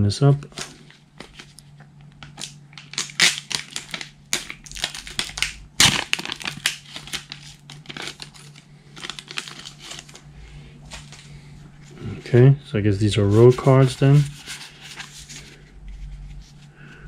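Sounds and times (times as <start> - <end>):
foil wrapper tearing and crinkling: 2.2 - 10.2.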